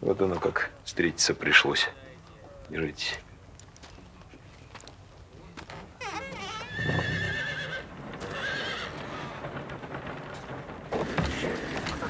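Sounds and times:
horse whinnying: 6.0s - 9.4s.

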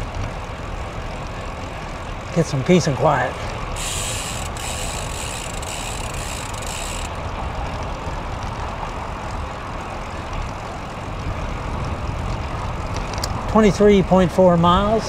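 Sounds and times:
wind buffeting microphone: 3.5s - 15.0s.

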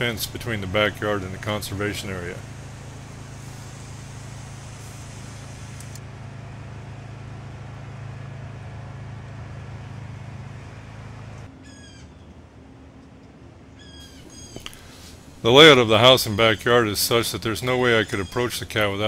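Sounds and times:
background hiss: 0.0s - 6.0s, 14.0s - 19.0s
steady low hum: 0.0s - 19.0s.

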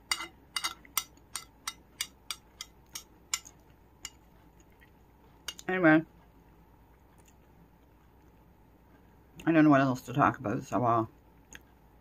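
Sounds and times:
metal spoon clinking against bowl: 0.0s - 4.2s.

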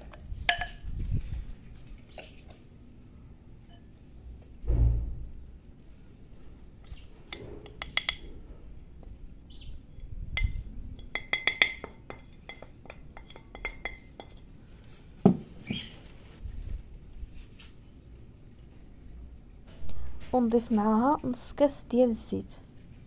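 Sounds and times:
loud knock: 4.6s - 5.3s
ringing ceramic clinks: 10.4s - 14.4s.

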